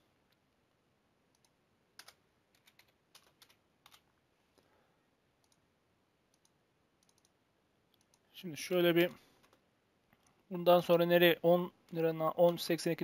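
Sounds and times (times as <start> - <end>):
mouse and keyboard clicks: 6.3 - 8.3.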